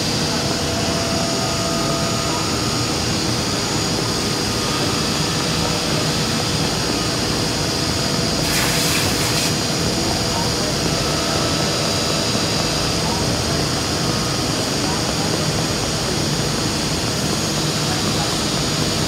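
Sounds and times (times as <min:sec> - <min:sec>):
short burst of hiss: 0:08.4 - 0:09.6.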